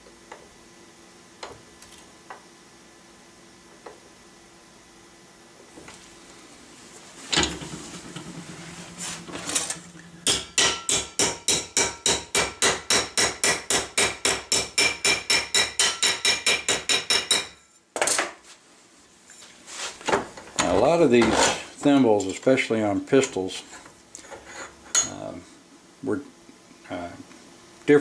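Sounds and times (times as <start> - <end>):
hammer striking metal: 10.2 - 17.6.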